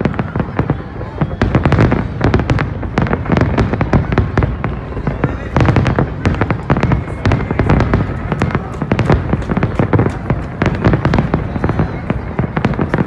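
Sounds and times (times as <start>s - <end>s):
fireworks bangs and crackles: 0.0s - 13.0s.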